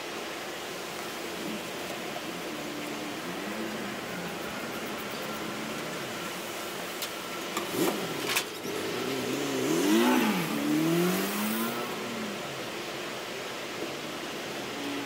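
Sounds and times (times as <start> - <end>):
vehicle engine revving: 1.2 - 14.4.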